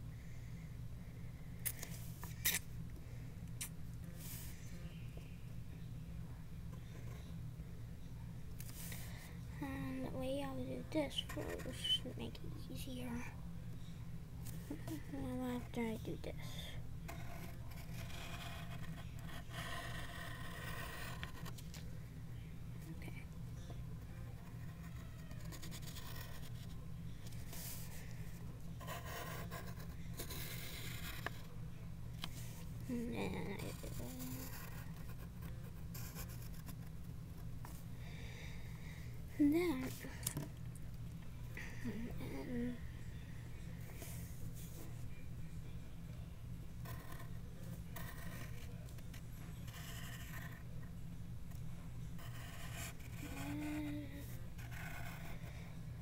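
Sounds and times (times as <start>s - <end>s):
pencil scratching on paper: 11.0s - 12.1s, 17.1s - 21.6s, 24.4s - 26.8s, 28.8s - 31.5s, 32.9s - 36.8s, 48.0s - 48.7s, 49.6s - 50.6s, 52.2s - 55.5s.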